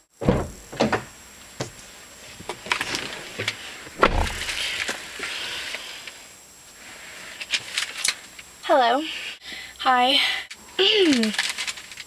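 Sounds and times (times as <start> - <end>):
car door shutting: 0.2 - 1.0, 4.0 - 4.6
clicks and rustles: 10.5 - 12.0.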